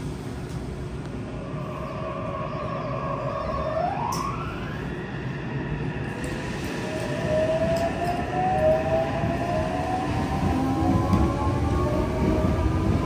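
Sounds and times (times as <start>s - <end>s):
train wheels rumbling: 4.2s - 13.0s.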